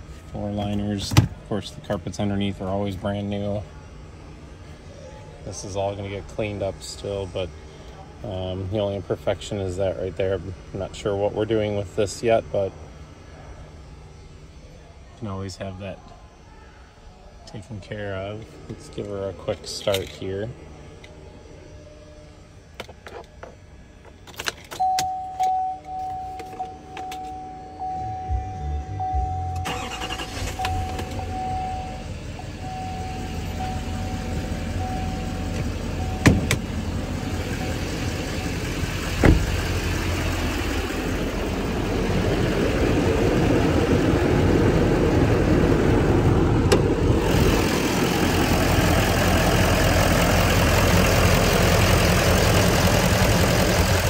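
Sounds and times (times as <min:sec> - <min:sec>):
ignition clicks: 0:24.2 - 0:27.4, 0:29.1 - 0:31.7, 0:33.6 - 0:36.8, 0:46.6 - 0:47.7
steady warning tone: 0:24.8 - 0:54.0
truck engine idling: 0:28.1 - 0:54.0.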